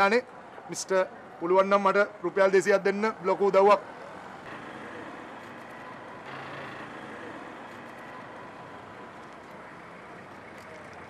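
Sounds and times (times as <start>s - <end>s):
street traffic noise: 0.0s - 11.0s
vehicles passing: 0.0s - 11.0s.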